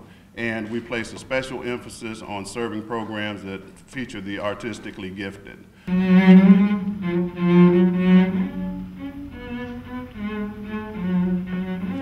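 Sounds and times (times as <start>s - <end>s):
bowed cello melody: 5.9s - 12.0s.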